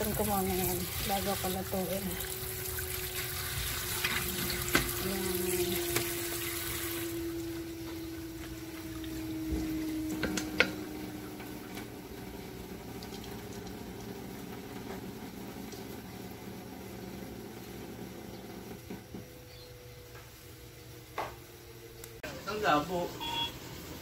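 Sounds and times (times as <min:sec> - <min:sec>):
tap water running into colander: 0:00.0 - 0:19.1
faint hum sinking in pitch: 0:00.0 - 0:24.0.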